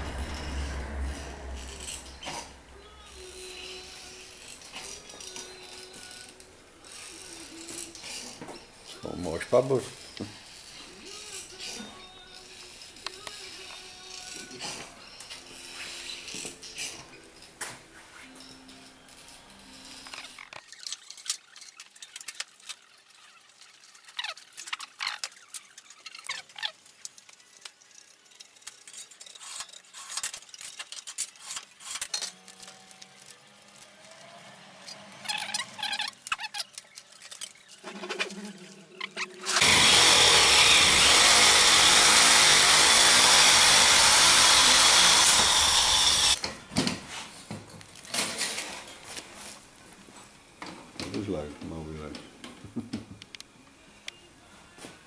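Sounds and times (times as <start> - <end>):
loud steady rushing noise: 0.0 - 2.8
tape and foil crinkling and tearing: 1.6 - 17.1, 19.2 - 46.4.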